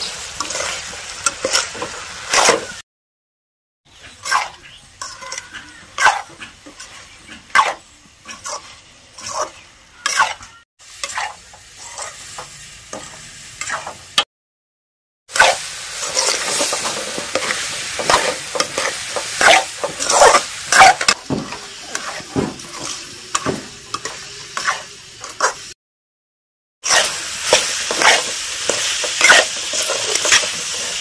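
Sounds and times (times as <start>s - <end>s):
loud sizzling: 0.0s - 2.8s, 15.3s - 25.8s, 26.8s - 31.0s
spatula scraping and clinking pan: 0.0s - 2.8s, 4.0s - 14.0s, 15.4s - 25.8s, 26.8s - 31.0s.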